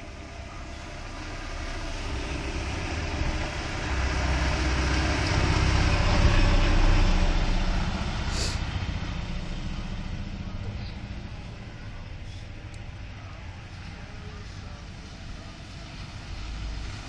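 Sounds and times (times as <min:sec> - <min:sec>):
lorry diesel engine passing: 0:00.0 - 0:17.0
short high hiss: 0:08.3 - 0:08.6.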